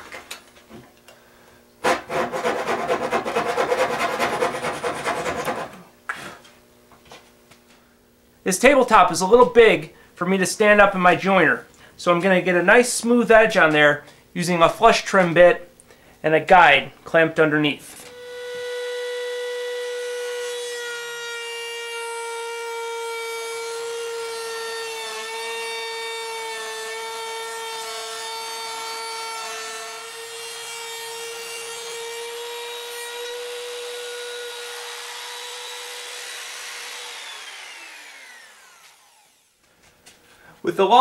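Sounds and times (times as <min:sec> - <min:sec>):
router whining and cutting wood: 0:18.0 - 0:39.7.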